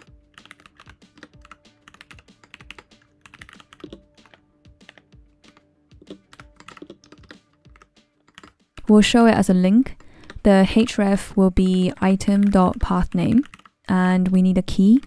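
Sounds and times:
typing on computer keyboard: 0.0 - 8.6, 11.6 - 15.0.

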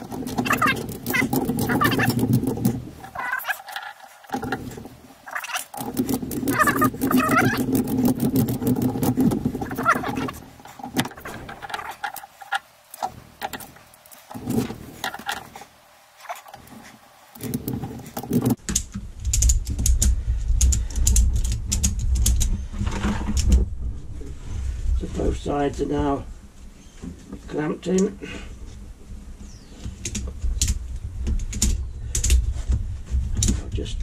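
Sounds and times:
low rumble: 19.1 - 26.6.

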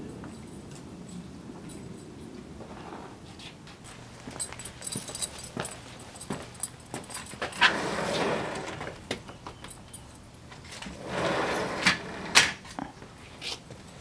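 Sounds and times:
sliding glass door rattling: 7.6 - 9.1, 10.6 - 12.7.

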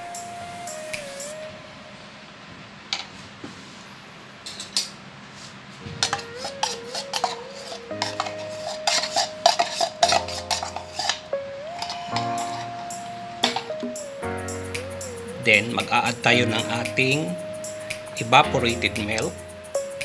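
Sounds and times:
light background melody: 0.0 - 1.9, 5.9 - 20.0.

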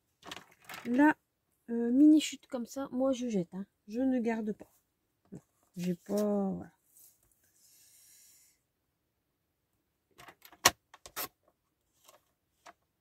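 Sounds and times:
paper rustling: 0.2 - 1.1, 5.8 - 6.4.

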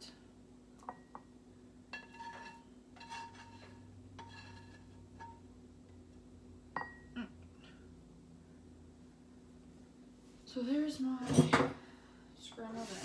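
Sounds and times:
spatula scraping frying pan: 1.9 - 5.4.

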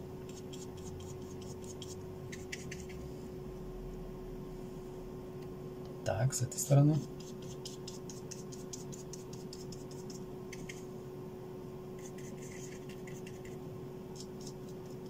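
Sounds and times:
steady low hum: 0.0 - 15.0
paintbrush scratching on paper: 0.3 - 3.0, 7.0 - 10.9, 12.0 - 15.0.

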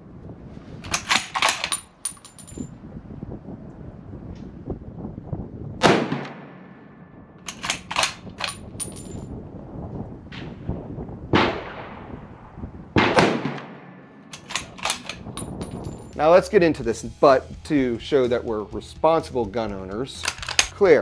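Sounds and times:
rifle shots with echo: 5.8 - 8.6, 11.3 - 15.3
sharp clicks: 7.4 - 8.7, 14.3 - 15.8, 20.2 - 20.8.

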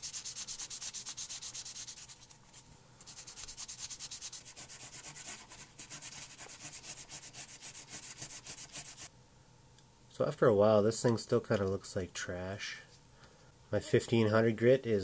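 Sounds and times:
sanding pad rubbing on metal: 0.0 - 2.2, 3.1 - 9.1.

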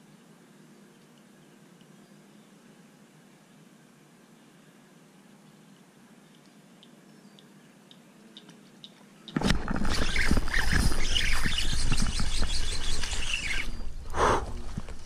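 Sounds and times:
faint ticks: 0.8 - 2.4, 4.6 - 9.4.

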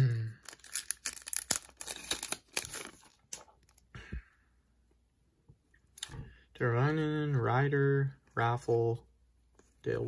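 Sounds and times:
foil wrapper crinkling and tearing: 0.4 - 3.7.

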